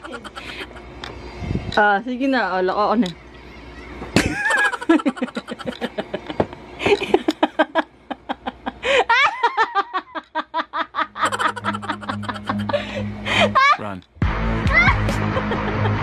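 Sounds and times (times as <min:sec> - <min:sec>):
hearty laughter: 0:00.0 - 0:00.9, 0:04.2 - 0:13.9, 0:15.1 - 0:16.0
background music: 0:11.3 - 0:16.0.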